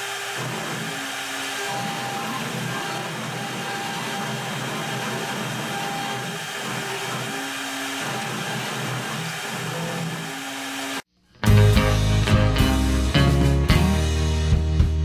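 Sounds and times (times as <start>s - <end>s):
router spindle whirring: 0.0s - 11.1s
rock music: 11.4s - 15.0s.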